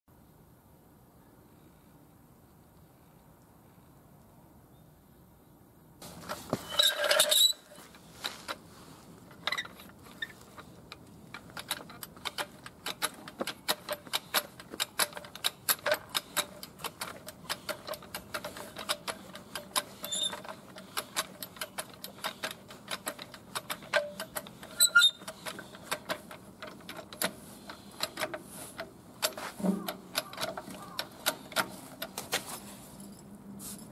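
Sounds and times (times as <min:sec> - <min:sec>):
floor jack metal rattle: 0:06.0 - 0:08.5
jack pumping clicks and knocks: 0:09.2 - 0:32.5.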